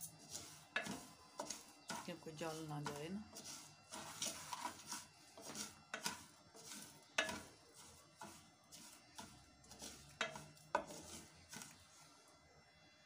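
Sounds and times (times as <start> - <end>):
wooden spoon scraping sugar in saucepan: 0.0 - 12.3
spoon knocking against pan: 7.1 - 7.5, 10.2 - 11.0.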